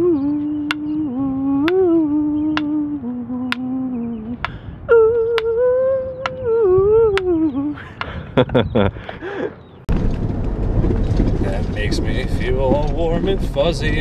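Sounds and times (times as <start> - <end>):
person humming: 0.0 - 8.0
sharp clicks keeping time: 0.5 - 4.6, 5.2 - 6.4.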